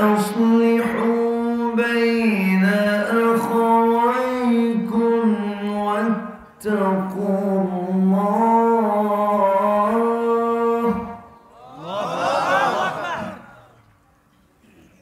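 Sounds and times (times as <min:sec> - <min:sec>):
man chanting verses: 0:00.0 - 0:13.2.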